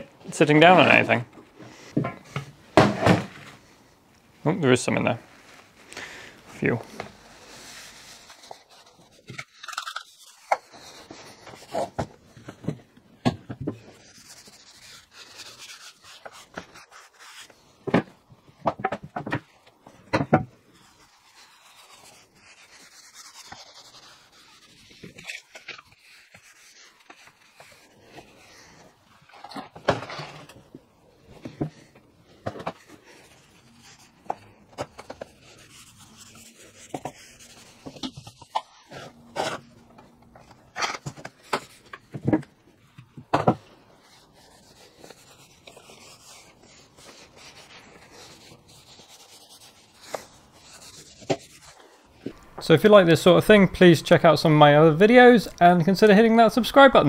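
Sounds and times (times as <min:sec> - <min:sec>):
cloth rag rubbing wood: 0:05.3 - 0:09.3, 0:13.8 - 0:18.3, 0:20.6 - 0:29.6, 0:32.8 - 0:40.6, 0:43.9 - 0:57.0.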